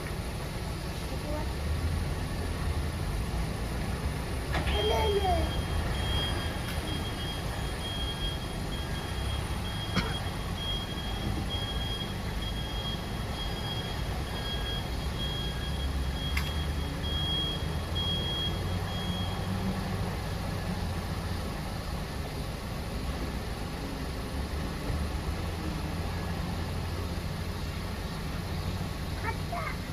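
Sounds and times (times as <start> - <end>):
diesel engine running: 0.0 - 29.9
truck reversing alarm beeping: 4.4 - 22.6.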